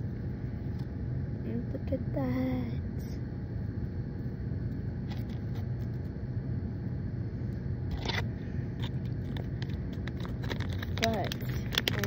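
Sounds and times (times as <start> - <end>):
foil pouch crinkling: 8.8 - 12.0.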